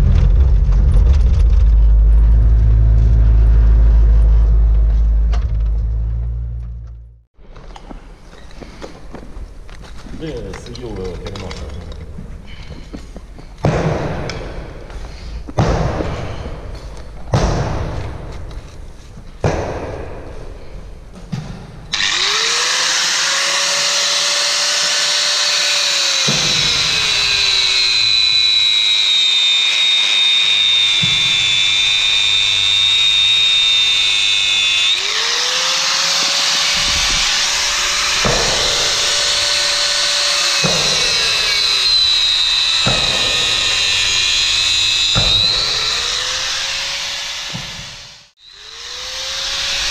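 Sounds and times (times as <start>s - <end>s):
angle grinder cutting steel: 21.9s - 49.9s.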